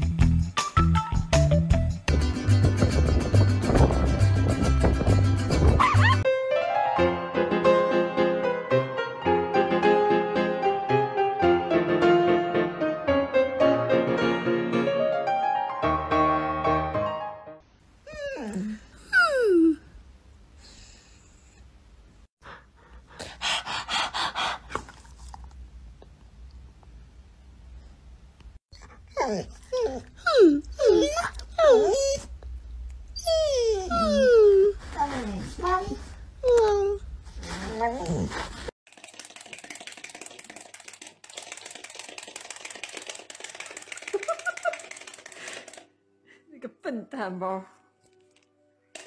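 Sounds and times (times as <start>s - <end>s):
dog panting: 22.4s - 25.1s.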